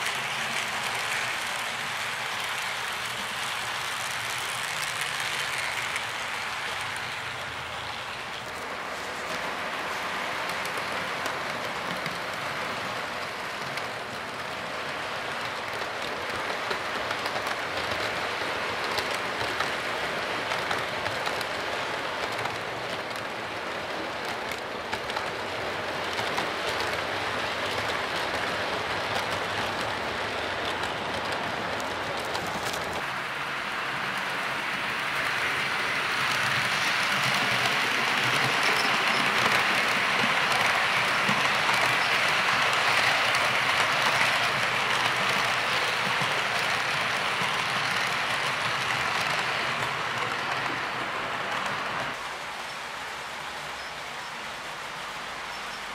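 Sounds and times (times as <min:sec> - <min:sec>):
model train wheels rattling on track: 0:00.0 - 0:55.9.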